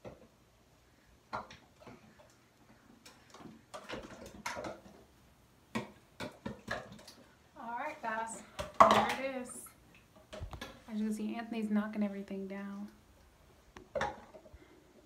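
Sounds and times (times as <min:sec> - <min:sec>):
small objects knocking and clattering: 0:01.3 - 0:05.1, 0:05.7 - 0:07.4, 0:08.5 - 0:10.9, 0:13.8 - 0:14.6.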